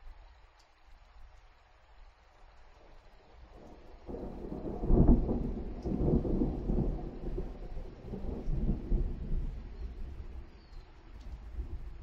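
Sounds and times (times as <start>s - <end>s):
thunder rumbling: 3.6s - 10.5s.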